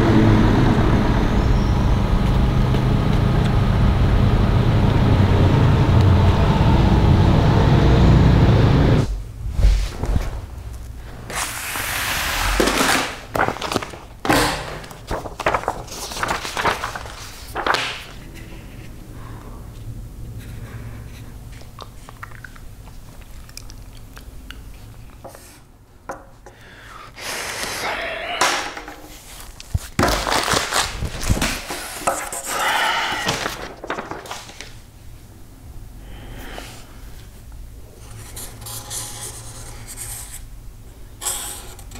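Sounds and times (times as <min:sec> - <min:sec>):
paper rustling and shuffling: 0:09.5 - 0:19.0, 0:28.9 - 0:34.9
low steady hum: 0:12.5 - 0:27.0
plastic package crinkling: 0:12.6 - 0:18.2, 0:29.3 - 0:31.6, 0:33.3 - 0:34.8.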